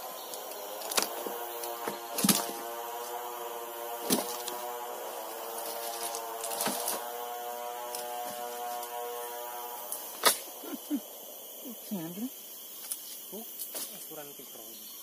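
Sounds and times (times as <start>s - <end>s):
chainsaw idling: 0.0s - 11.8s.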